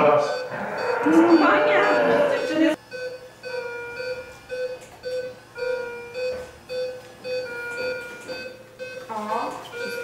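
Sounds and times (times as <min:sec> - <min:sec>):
higher repeating tone: 0:00.0 - 0:02.8
patient monitor beeping: 0:00.0 - 0:10.0.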